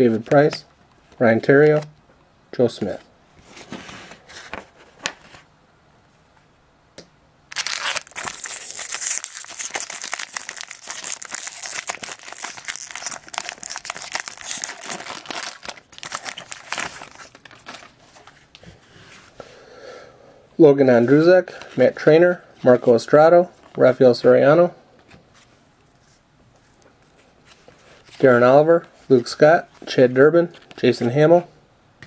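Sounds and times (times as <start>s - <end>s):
foil wrapper tearing and crinkling: 7.5s - 18.0s.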